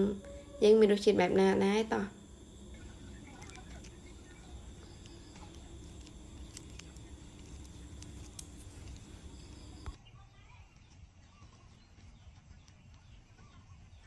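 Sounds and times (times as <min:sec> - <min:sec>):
high insect drone: 0:00.0 - 0:10.0.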